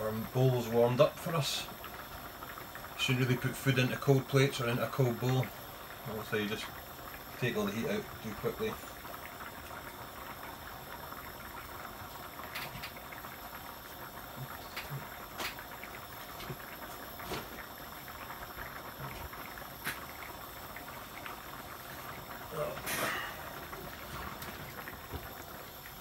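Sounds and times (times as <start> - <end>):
curry bubbling in a pan: 0.0 - 26.0.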